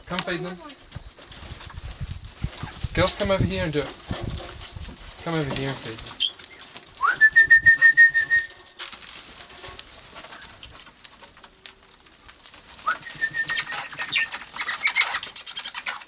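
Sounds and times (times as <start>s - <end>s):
parrots flapping wings: 0.0s - 16.0s
high warbling whistle: 7.0s - 8.6s, 12.9s - 14.2s.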